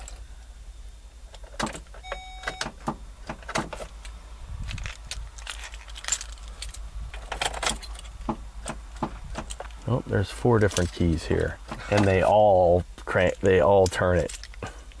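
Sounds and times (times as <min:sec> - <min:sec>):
electronic chime: 0:02.0 - 0:02.6
keys jangling and clicking: 0:04.0 - 0:08.2, 0:14.2 - 0:15.0.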